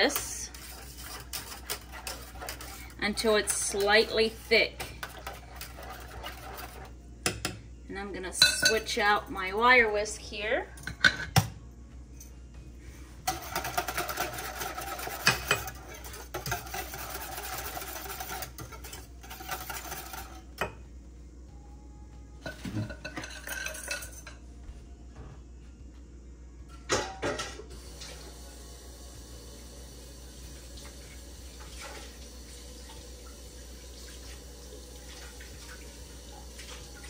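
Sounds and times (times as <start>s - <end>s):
whisk scraping metal pan: 0.0s - 6.9s, 13.3s - 20.4s.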